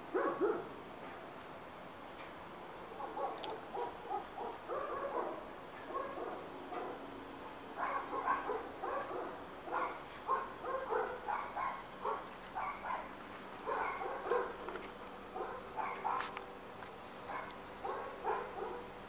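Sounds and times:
dog barking: 0:00.1 - 0:00.8, 0:02.9 - 0:07.0, 0:07.8 - 0:16.4, 0:17.2 - 0:18.9.

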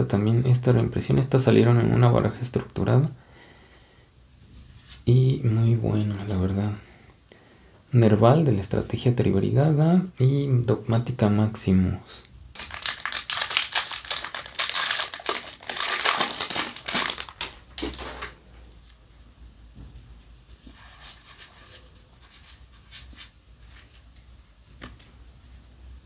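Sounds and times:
cards shuffling: 0:12.6 - 0:18.4
plastic crinkling: 0:12.6 - 0:18.4.

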